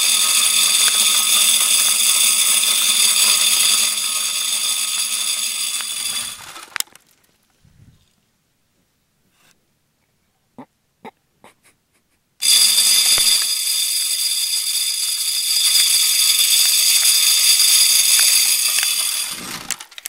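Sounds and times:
feeder motor whirring: 0.0s - 6.8s, 12.4s - 20.0s.

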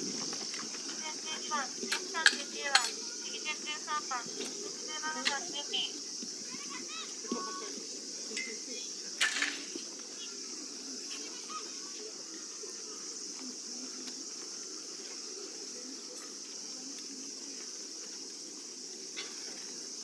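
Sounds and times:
cicada chorus buzzing: 0.0s - 20.0s.

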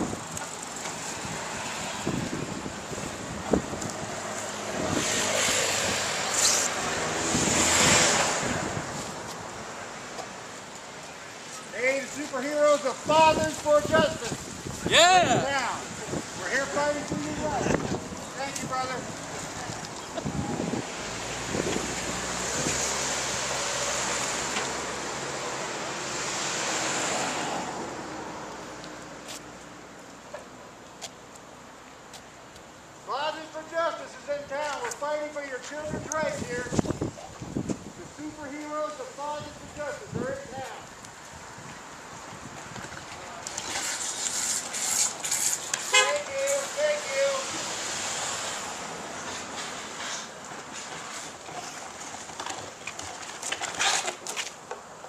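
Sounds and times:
cars passing: 0.0s - 55.0s
tyre and road noise: 0.0s - 55.0s
wind hiss on microphone: 1.1s - 9.6s, 12.7s - 23.0s, 35.8s - 43.0s.

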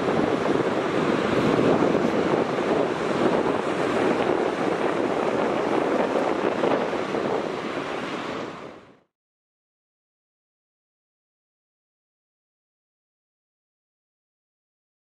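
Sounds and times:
steady outdoor rushing noise: 0.0s - 9.1s.

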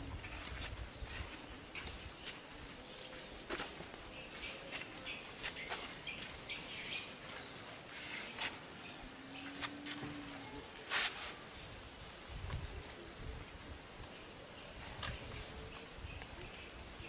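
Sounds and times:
finger scratching through sand: 10.9s - 11.4s.

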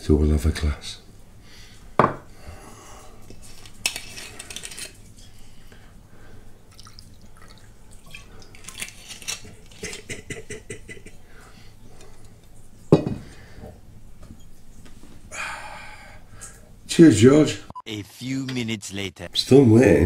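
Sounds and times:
glass knocking on surface: 2.0s - 2.2s
whiskey pouring into glass: 6.7s - 8.9s.

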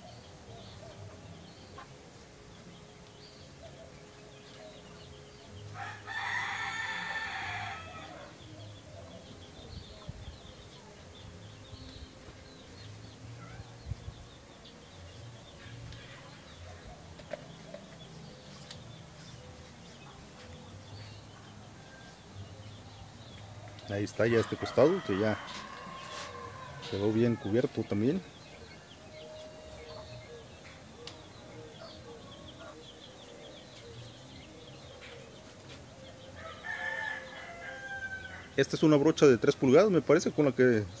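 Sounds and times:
rooster crowing: 5.8s - 8.4s, 24.3s - 27.7s, 36.4s - 38.6s.

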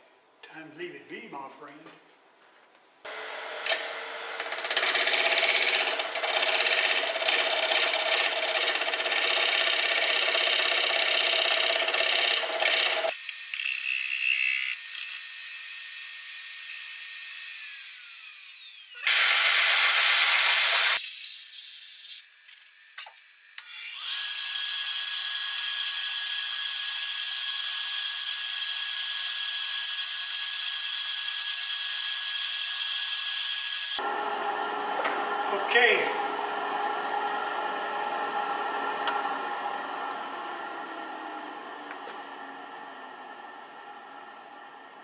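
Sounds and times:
wood lathe running: 3.1s - 13.2s, 17.8s - 21.0s, 33.3s - 45.0s
thin steady whine: 34.0s - 45.0s.

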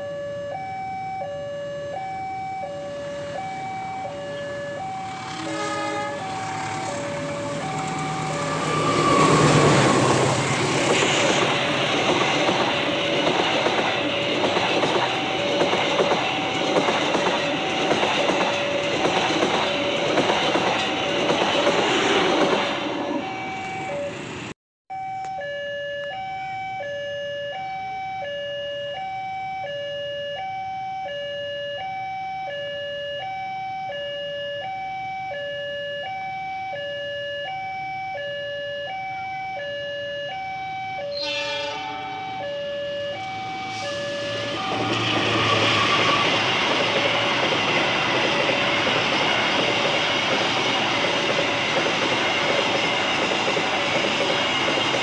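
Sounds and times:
two-tone level crossing alarm: 0.0s - 55.0s
locomotive passing: 2.3s - 24.5s, 41.1s - 55.0s
train horn: 4.2s - 10.5s, 41.1s - 46.4s
train wheel clacks: 6.3s - 23.8s, 43.7s - 55.0s.

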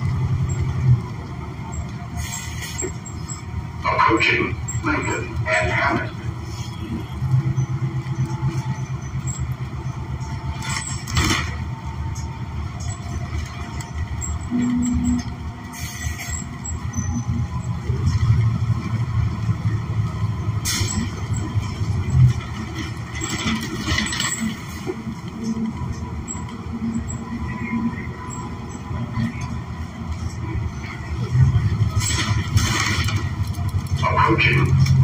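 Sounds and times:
bus engine and road rumble: 0.0s - 35.0s.

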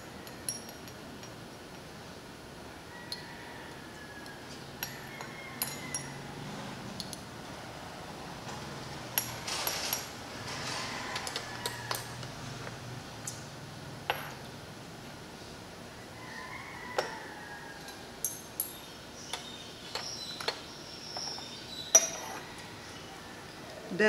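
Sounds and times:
glassware clinking and tapping: 4.8s - 6.2s, 14.1s - 14.4s, 21.2s - 22.4s.

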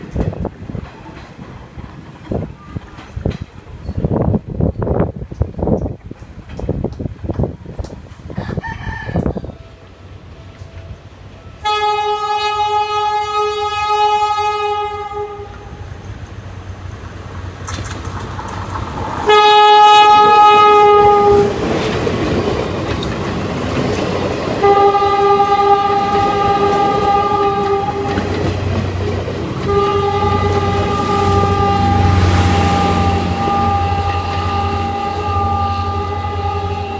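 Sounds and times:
train rumble and wheel clatter: 0.0s - 36.9s
train horn blasts: 11.4s - 15.8s, 19.2s - 21.7s, 24.6s - 28.3s, 29.6s - 36.9s.

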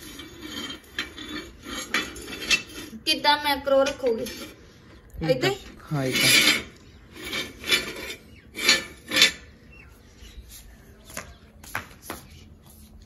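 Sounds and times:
metal frame scraping on tile floor: 0.0s - 9.6s.

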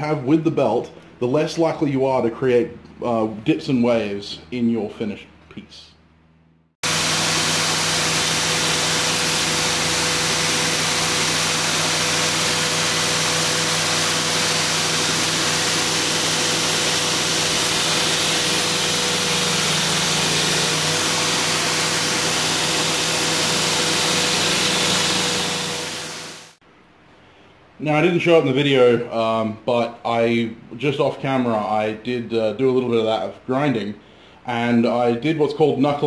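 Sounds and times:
belt grinder running: 6.8s - 26.6s.

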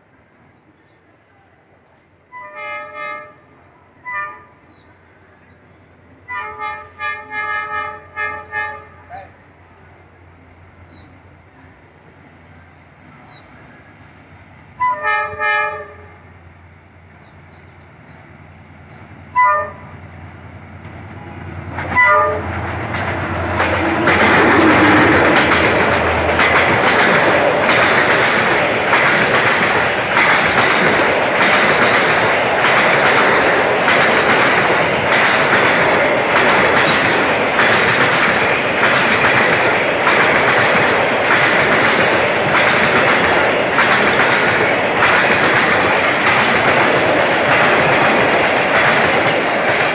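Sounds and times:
freight train rolling by: 0.0s - 49.9s
locomotive horn blasts: 2.3s - 3.4s, 6.3s - 9.0s, 14.8s - 16.2s, 19.3s - 19.9s, 21.9s - 22.6s
wheels clacking over rail joints: 20.8s - 49.9s.

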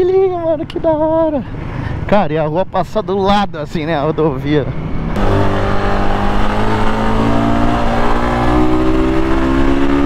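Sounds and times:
motorcycle engine accelerating: 5.2s - 10.0s.

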